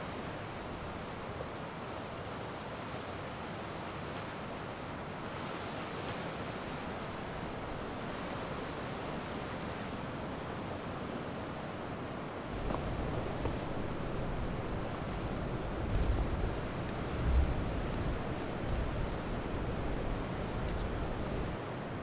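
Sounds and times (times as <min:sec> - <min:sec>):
wind: 0:00.0 - 0:22.0
surf breaking on rocky shore: 0:12.4 - 0:21.6.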